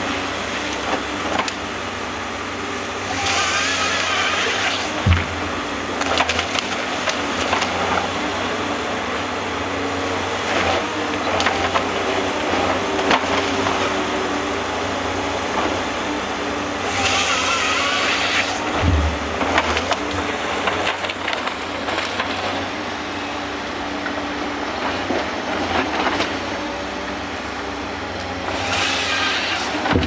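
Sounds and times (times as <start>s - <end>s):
harvester hydraulic engine: 0.0s - 27.6s, 28.2s - 30.0s
saw cutting through log: 0.0s - 30.0s
branches cracking and splintering: 4.6s - 8.0s, 18.6s - 22.6s
log dropping thump: 5.0s - 7.7s, 18.6s - 21.4s, 29.8s - 30.0s.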